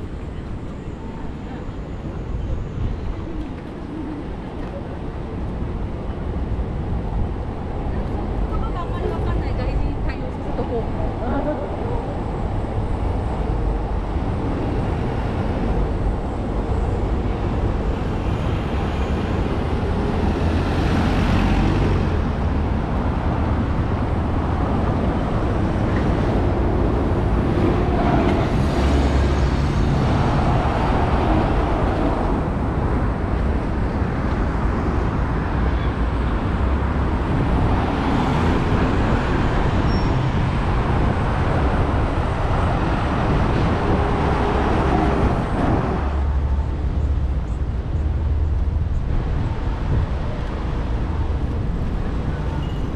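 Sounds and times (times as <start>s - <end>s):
cars and buses rumbling: 0.0s - 52.9s.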